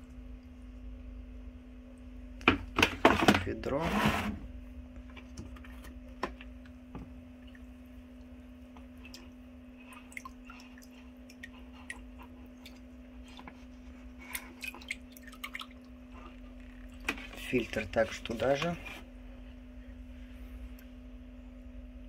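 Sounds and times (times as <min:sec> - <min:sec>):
faint hum: 0:00.0 - 0:22.0
water dripping: 0:06.4 - 0:13.6, 0:14.2 - 0:17.2.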